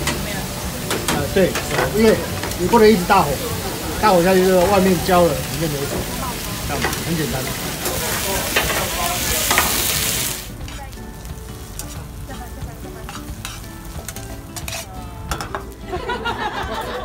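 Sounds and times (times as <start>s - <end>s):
meat sizzling in a pan: 0.0s - 15.9s
onions frying: 0.0s - 17.0s
tongs clicking and scraping pan: 0.9s - 3.1s, 6.7s - 15.7s.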